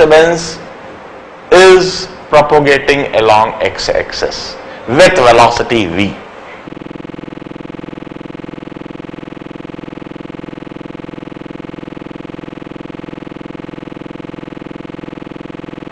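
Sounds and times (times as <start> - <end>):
electronic buzzing drone: 6.6 - 15.9.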